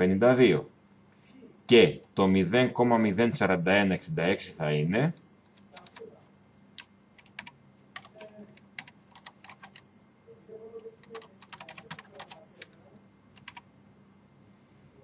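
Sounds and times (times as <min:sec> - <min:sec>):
typing on computer keyboard: 0:05.5 - 0:06.1, 0:06.8 - 0:09.8, 0:10.8 - 0:13.6.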